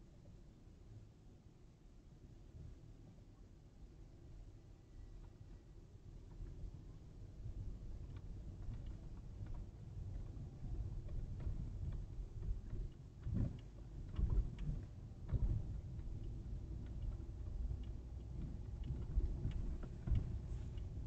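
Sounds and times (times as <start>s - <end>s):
road and engine rumble: 8.0s - 21.0s
dull bumps: 18.4s - 21.0s.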